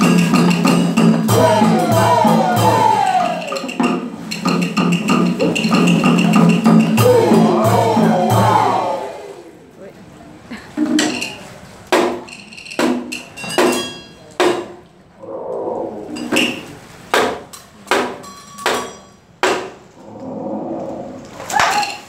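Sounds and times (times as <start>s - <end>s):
wooden and metallic percussion strikes: 0.0s - 9.2s, 10.8s - 14.9s, 16.1s - 20.4s
held voice or instrument tone: 7.0s - 9.6s.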